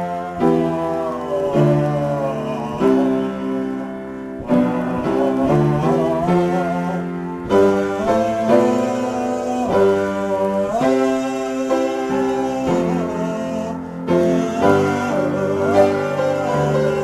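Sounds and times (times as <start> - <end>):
improvised piano music: 0.0 - 17.0.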